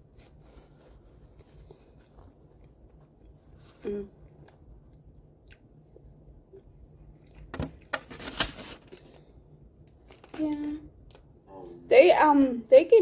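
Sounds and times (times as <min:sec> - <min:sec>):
paper wrapping crinkling: 0:07.9 - 0:09.3, 0:09.9 - 0:10.8.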